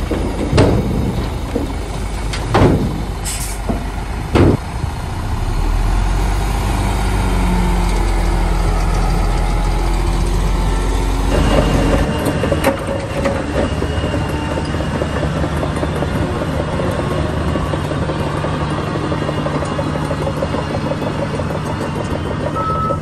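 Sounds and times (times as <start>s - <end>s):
loud metallic bangs: 0.0s - 6.1s
bulldozer diesel engine running: 0.0s - 23.0s.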